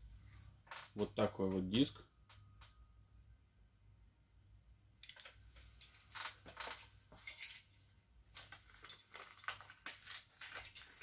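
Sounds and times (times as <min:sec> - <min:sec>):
packaging rustling: 0:08.4 - 0:11.0
faint clicks and clinks: 0:08.5 - 0:11.0.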